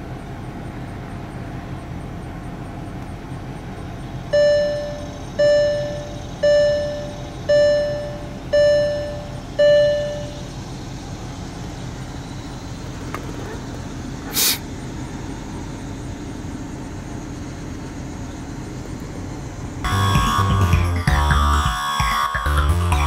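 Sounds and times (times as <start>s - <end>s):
low cabin hum: 0.0s - 23.0s
dashboard warning chime: 4.3s - 10.6s, 19.8s - 22.2s.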